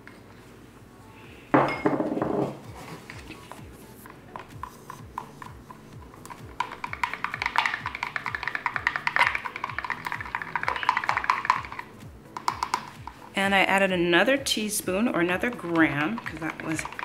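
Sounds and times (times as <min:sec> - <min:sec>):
background music with drum beat: 0:02.5 - 0:17.0
spatula scraping plastic pitcher: 0:15.2 - 0:17.0.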